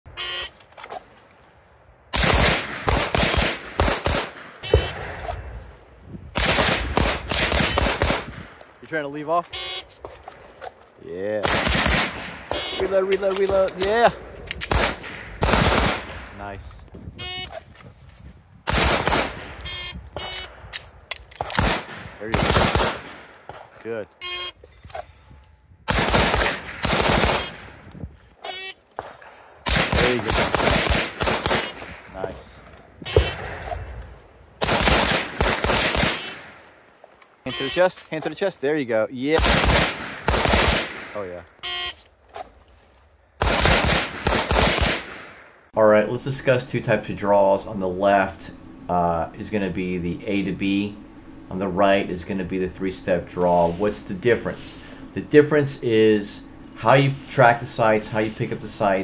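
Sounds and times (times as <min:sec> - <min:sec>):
shot timer beep: 0:24.2 - 0:24.6.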